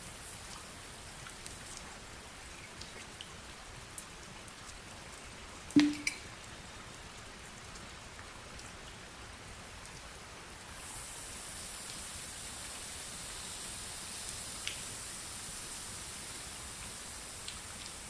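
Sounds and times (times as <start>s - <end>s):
steady hiss: 0.0s - 3.9s, 9.3s - 18.0s
water drops pattering on plastic: 5.7s - 6.4s
sharp knock with low ring: 5.8s - 6.2s.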